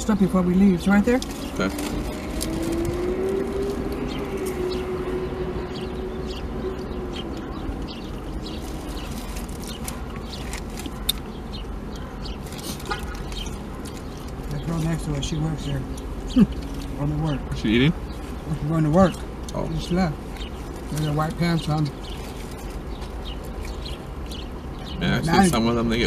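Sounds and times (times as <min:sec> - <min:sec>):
paper food wrapper crackling: 0:08.3 - 0:11.3.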